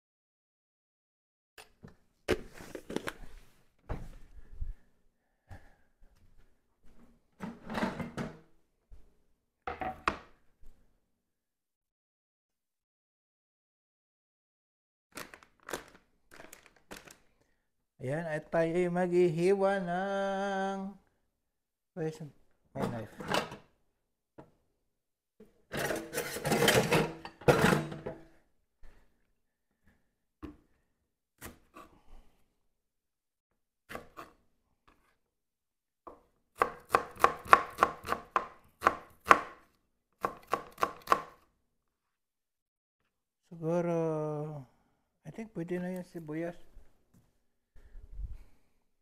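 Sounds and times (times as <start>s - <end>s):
kitchen items clattering: 7.4s - 8.4s, 22.8s - 23.6s, 25.7s - 28.3s.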